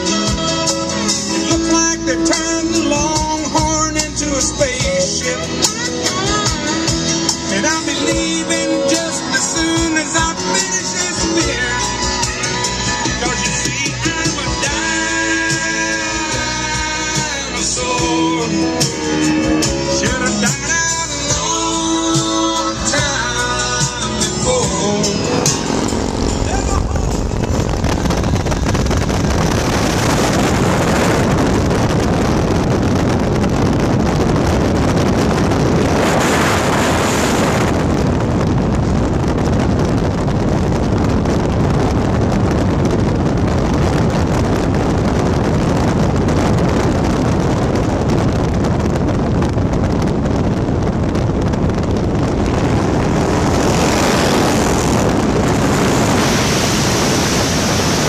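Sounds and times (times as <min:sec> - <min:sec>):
vehicle road noise: 0:00.0 - 0:58.0
wind rushing over microphone: 0:00.0 - 0:58.0.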